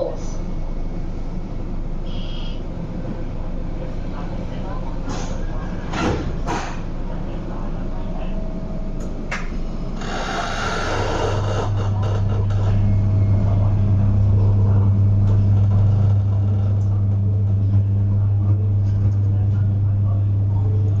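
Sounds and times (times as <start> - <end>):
train low hum: 0.0 - 21.0.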